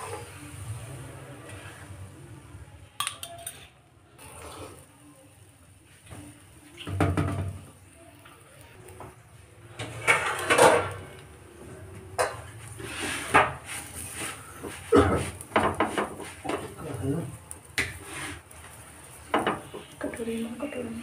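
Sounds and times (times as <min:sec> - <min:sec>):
spoon scraping on pan: 0:00.0 - 0:00.5, 0:01.4 - 0:02.0, 0:09.7 - 0:18.5, 0:19.2 - 0:20.2
utensils knocking on griddle: 0:06.8 - 0:07.6, 0:15.4 - 0:16.7, 0:19.3 - 0:19.9.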